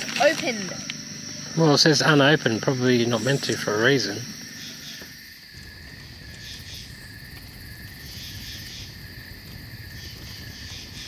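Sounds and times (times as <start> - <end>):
crickets trilling: 0.0 - 11.0
higher insect trill: 0.0 - 11.0.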